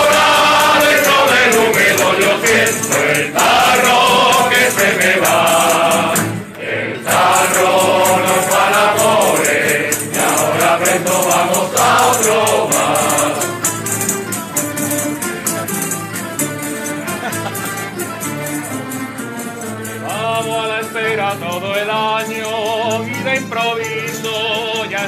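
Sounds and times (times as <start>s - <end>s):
male chorus singing: 0.0s - 13.7s
accordion: 0.0s - 25.0s
strummed guitars: 0.0s - 25.0s.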